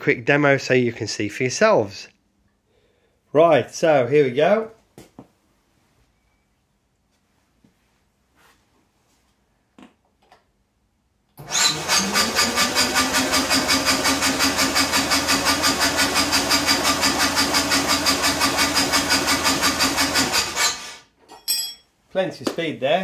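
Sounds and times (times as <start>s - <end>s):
starter motor cranking engine: 11.4s - 21.0s.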